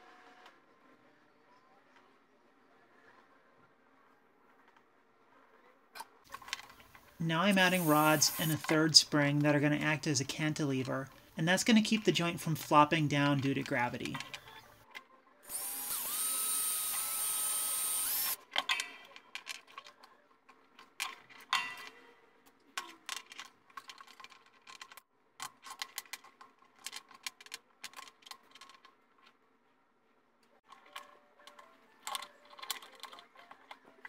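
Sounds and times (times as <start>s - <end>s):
small power drill boring into bone: 7.6s - 8.6s, 15.5s - 18.4s.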